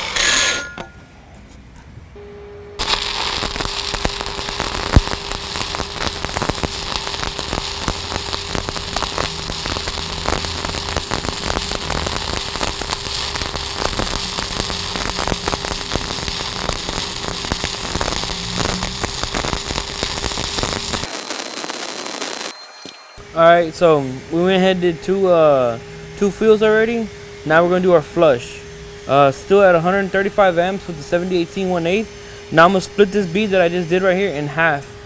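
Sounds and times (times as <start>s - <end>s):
welding arc crackling: 2.8s - 22.6s.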